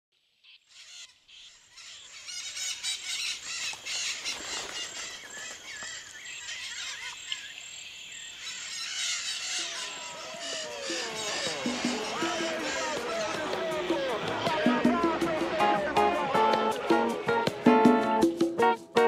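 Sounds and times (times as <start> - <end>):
birds chirping in a chorus: 0.2 - 14.5.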